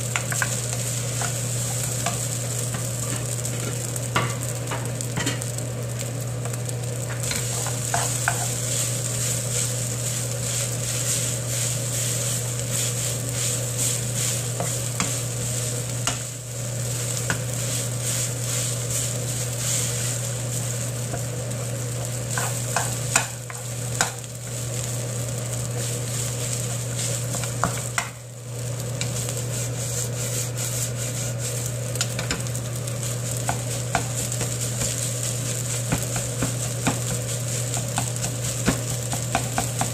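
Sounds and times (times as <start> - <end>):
rice sizzling in a frying pan: 0.0 - 39.9
wooden spoon scraping a pan: 7.2 - 16.2, 17.2 - 24.2, 29.0 - 39.9.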